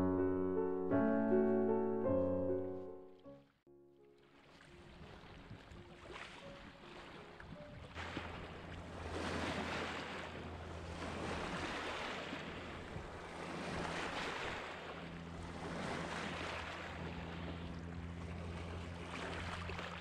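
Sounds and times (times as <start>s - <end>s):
waves lapping on pebbles: 4.4s - 20.0s.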